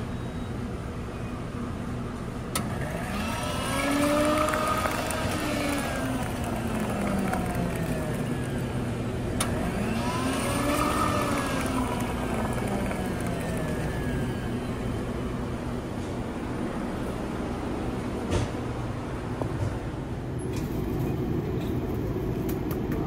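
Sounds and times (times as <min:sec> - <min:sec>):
coffee machine motor hum: 0:02.1 - 0:18.2
coffee pouring into cup: 0:03.6 - 0:08.3.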